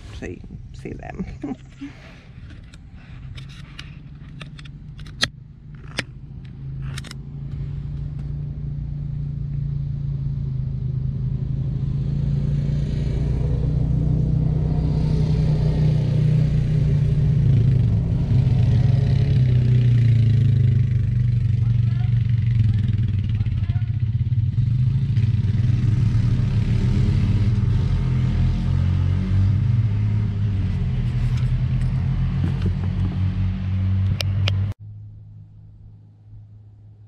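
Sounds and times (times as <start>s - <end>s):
atv engines droning: 0.0s - 37.0s
sharp clicks: 2.4s - 7.2s.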